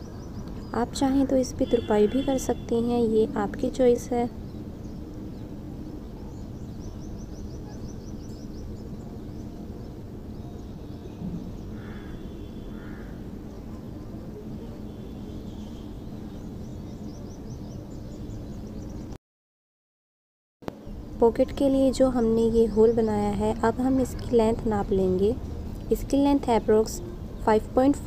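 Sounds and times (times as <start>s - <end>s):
faint bird chirps: 4.4s - 19.2s.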